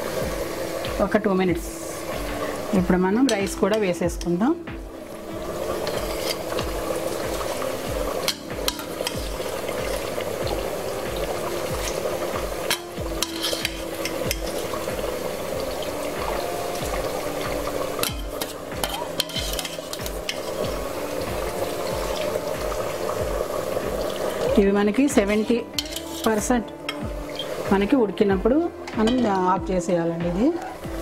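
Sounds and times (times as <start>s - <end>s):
water boiling and bubbling: 0.0s - 29.3s, 30.8s - 31.0s
metal strainer clinking on pot: 12.7s - 14.6s, 18.0s - 20.5s, 25.8s - 27.5s.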